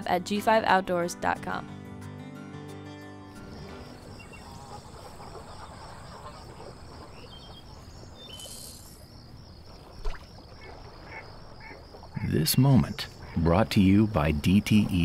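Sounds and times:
pulsing insect chorus: 3.3 - 15.0
soft outdoor hiss: 3.4 - 15.0
short bird calls: 7.0 - 9.1.

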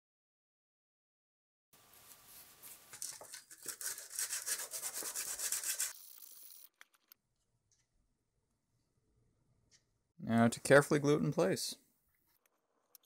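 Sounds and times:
sanding by hand on sandpaper: 3.7 - 6.0.

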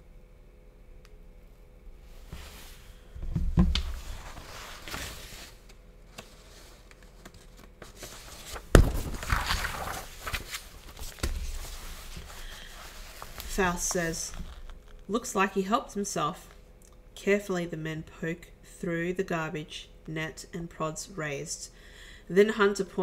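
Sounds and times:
rustling: 3.7 - 15.0.

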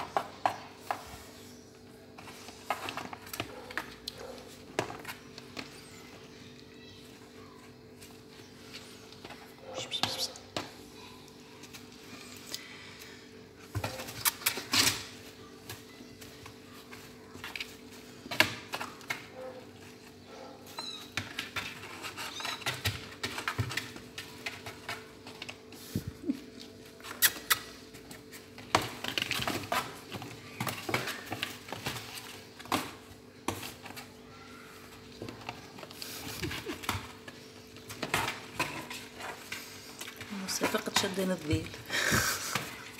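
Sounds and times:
kittens scratching in a box: 13.7 - 42.9.

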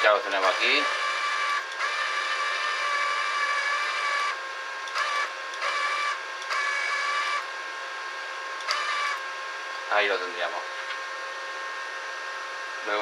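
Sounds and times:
wire-feed motor whining: 0.0 - 13.0.

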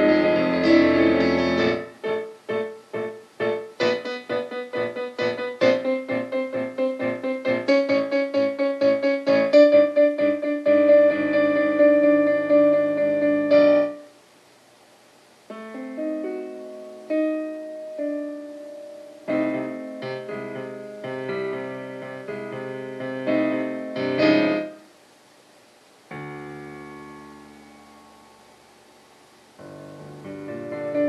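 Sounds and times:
solo piano chords: 0.0 - 14.1, 15.5 - 24.9, 26.1 - 31.0.

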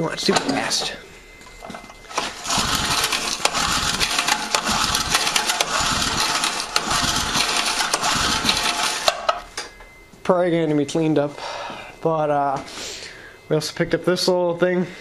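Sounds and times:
small gas engine pull-started: 2.1 - 9.4.

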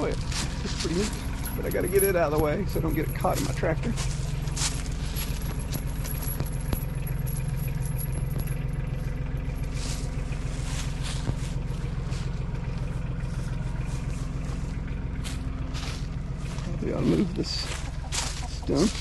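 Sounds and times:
metal chain clinking: 0.0 - 13.3
tractor engine idling: 0.0 - 19.0.

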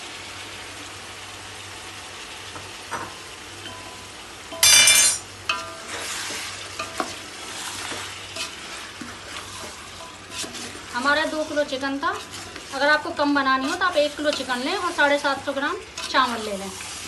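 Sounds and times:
chicken sizzling in a pot: 0.0 - 17.0
spoon scraping a pot: 4.6 - 15.1.

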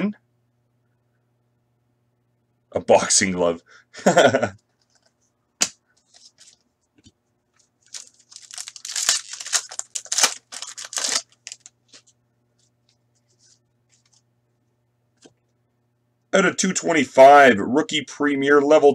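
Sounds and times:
foil wrapper tearing and crinkling: 7.8 - 11.7.

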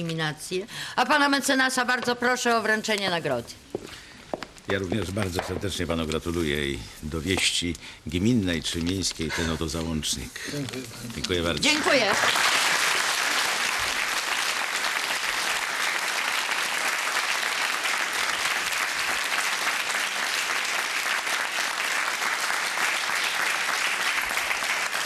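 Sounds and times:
audience applauding: 10.7 - 25.0.

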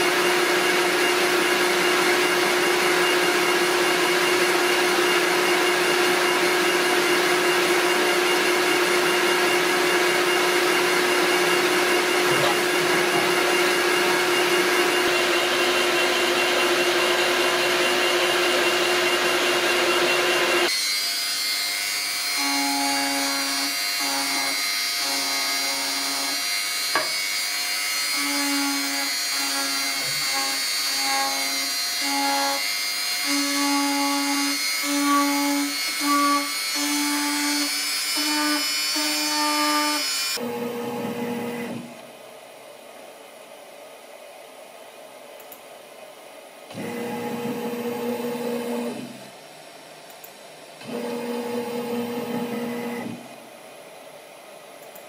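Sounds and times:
cutting machine humming and whirring: 0.0 - 42.0, 46.7 - 53.4
engraving pen buzzing: 22.4 - 40.4.

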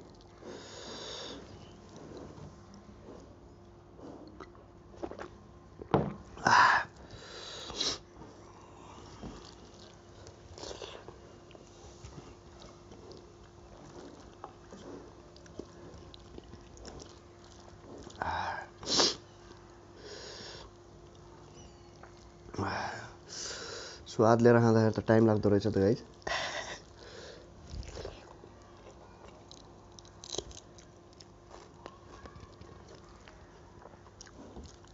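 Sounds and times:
chewing and mouth noises: 0.0 - 0.6, 7.7 - 18.8, 26.0 - 34.9
faint steady hum: 0.0 - 34.9
loud breaths through nose: 0.4 - 1.5, 7.1 - 8.0.

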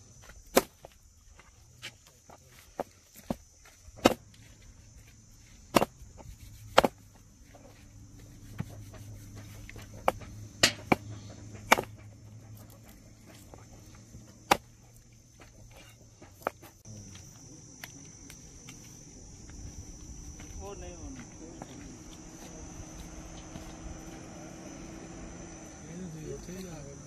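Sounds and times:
cleaver chopping meat: 4.0 - 4.2, 5.7 - 6.0, 6.7 - 7.0, 8.6 - 12.1.

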